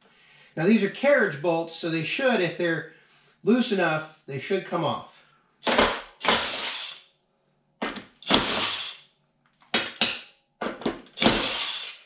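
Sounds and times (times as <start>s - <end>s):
impact driver bursts: 5.6s - 7.0s, 7.9s - 9.0s, 11.1s - 12.0s.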